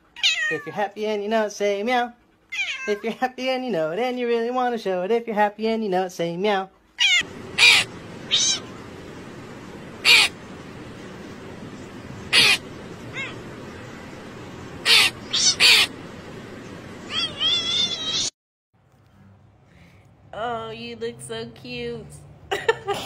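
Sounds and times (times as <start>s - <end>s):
cat meowing: 0.2s - 0.8s, 2.5s - 3.0s, 7.0s - 8.8s, 10.0s - 10.4s, 12.3s - 14.0s, 14.8s - 15.9s, 17.0s - 18.3s
crow cawing: 7.2s - 8.8s, 10.0s - 10.4s, 12.3s - 13.5s, 14.8s - 16.0s
steady outdoor hiss: 7.2s - 18.3s.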